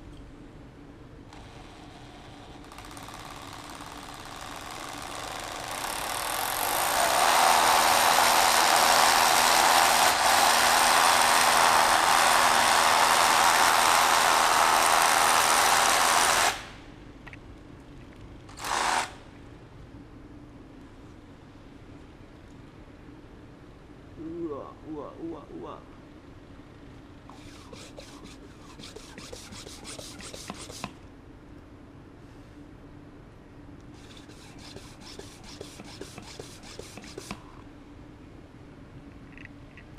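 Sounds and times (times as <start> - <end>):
hammer drill boring concrete: 1.4 - 16.6.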